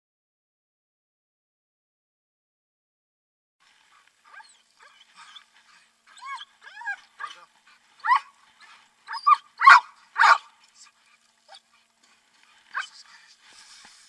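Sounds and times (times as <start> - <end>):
dog whining and yelping: 4.3 - 10.4, 12.7 - 13.0.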